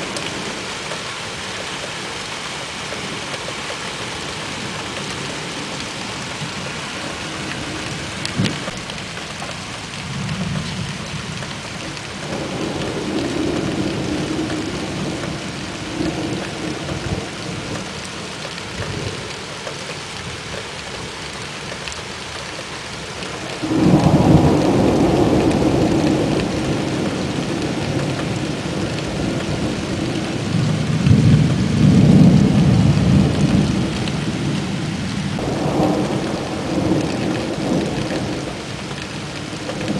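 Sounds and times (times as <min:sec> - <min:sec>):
steady rain hissing: 0:00.0 - 0:39.9
loud thunderclap: 0:23.6 - 0:34.2, 0:35.4 - 0:38.7
thunder rolling: 0:23.6 - 0:39.9.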